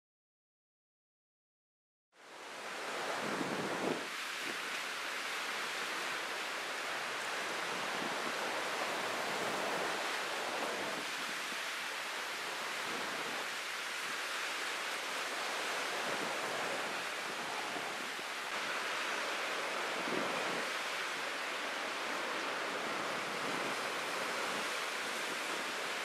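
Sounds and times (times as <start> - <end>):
wind: 2.1 - 26.0
choppy sea: 2.2 - 26.0.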